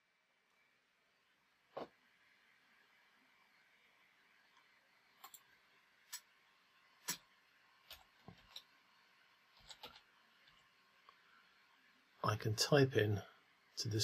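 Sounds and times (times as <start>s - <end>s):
mouse and keyboard clicks: 5.2s - 5.5s.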